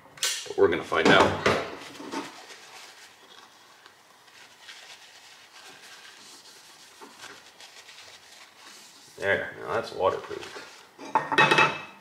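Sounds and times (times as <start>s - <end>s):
paper towel rubbing and rustling: 1.7s - 11.0s
soft handling noises: 1.7s - 11.1s.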